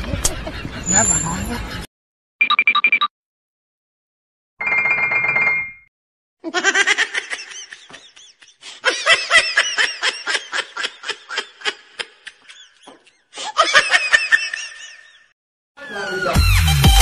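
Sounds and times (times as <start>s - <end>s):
rapid high-pitched laughter: 6.4s - 15.3s.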